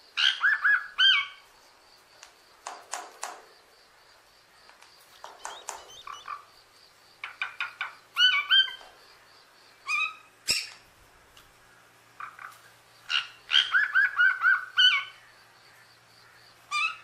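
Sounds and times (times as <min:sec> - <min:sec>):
sharp click: 0:04.7 - 0:06.0.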